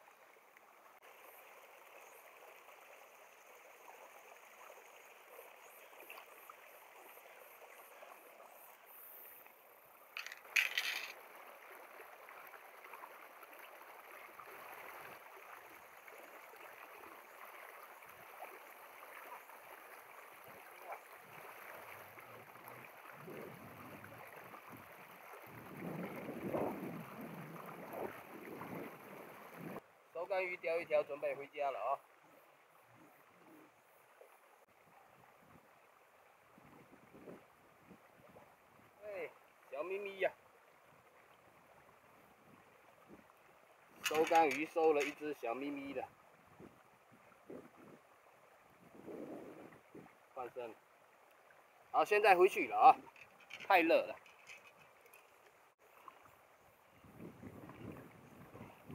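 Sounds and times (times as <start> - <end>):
rustle: 0.0 - 58.9
mountain stream rushing: 10.1 - 31.9, 43.6 - 56.2
sharp clatter: 10.2 - 11.2, 44.0 - 45.1.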